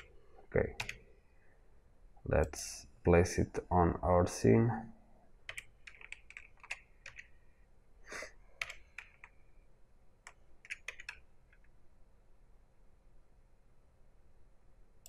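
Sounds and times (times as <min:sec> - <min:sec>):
computer keyboard clicks: 0:00.8 - 0:01.0, 0:05.5 - 0:07.3, 0:08.6 - 0:09.3, 0:10.2 - 0:11.7.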